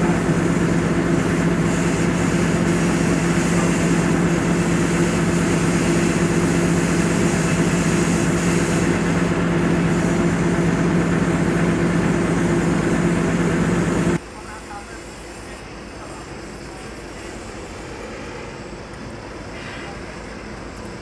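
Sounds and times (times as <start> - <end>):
diesel engine running: 0.0 - 14.6.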